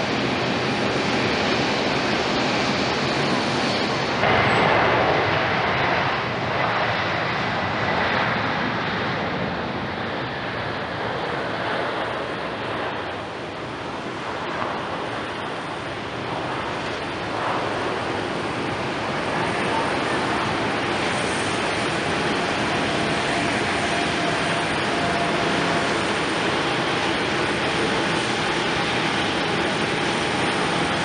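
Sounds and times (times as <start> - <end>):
jet engines rushing: 0.0 - 31.0.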